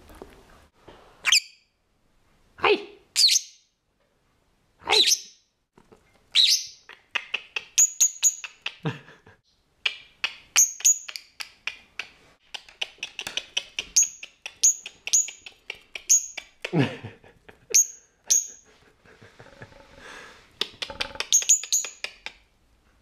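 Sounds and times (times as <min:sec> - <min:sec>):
lovebird chirping and calling: 0:01.2 - 0:01.7, 0:03.2 - 0:03.7, 0:04.9 - 0:05.4, 0:06.4 - 0:06.9, 0:07.5 - 0:08.7, 0:09.9 - 0:11.3, 0:12.9 - 0:16.6, 0:17.7 - 0:18.6, 0:20.7 - 0:22.3.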